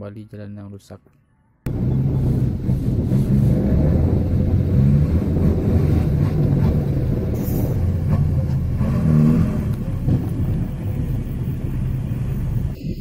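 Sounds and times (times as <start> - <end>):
diesel truck engines rumbling: 1.7 - 13.0.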